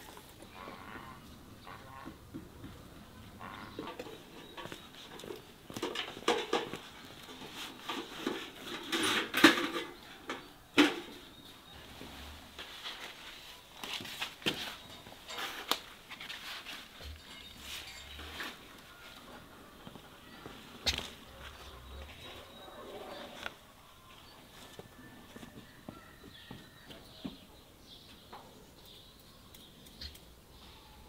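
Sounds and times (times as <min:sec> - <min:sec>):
rustling: 0:11.7 - 0:24.8.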